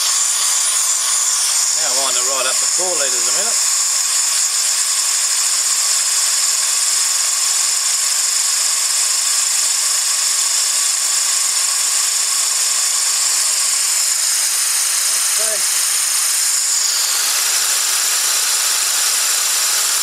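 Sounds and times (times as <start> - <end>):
small fan whirring: 0.0 - 6.6, 13.0 - 20.0.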